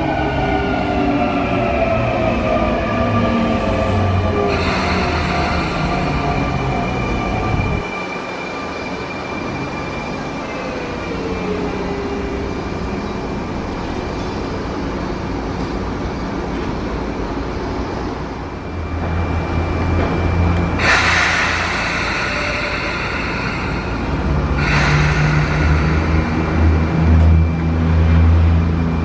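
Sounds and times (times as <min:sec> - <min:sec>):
train moving past: 0:00.0 - 0:29.0
train equipment running: 0:04.4 - 0:07.8, 0:16.5 - 0:29.0.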